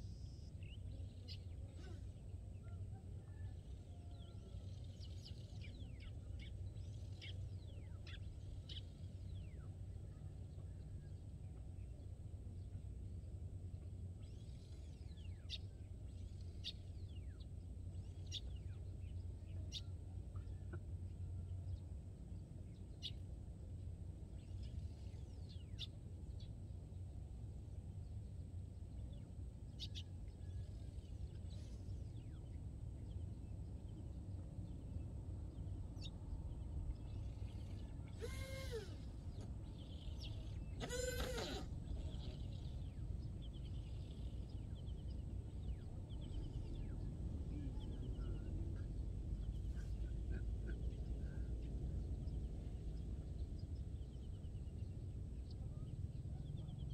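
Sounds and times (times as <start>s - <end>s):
faint bird chirps: 0.0s - 12.9s, 13.6s - 22.0s, 27.8s - 56.9s
wavering animal calls: 37.4s - 42.9s.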